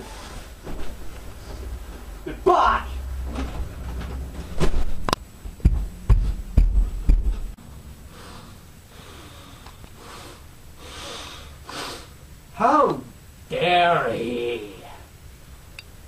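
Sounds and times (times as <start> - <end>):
huffing breaths through nose: 8.1 - 12.2.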